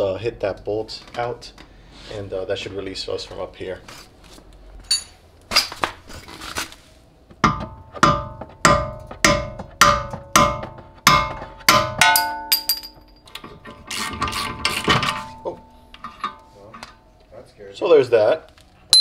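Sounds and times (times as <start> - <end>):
hammer striking metal: 7.4 - 13.3.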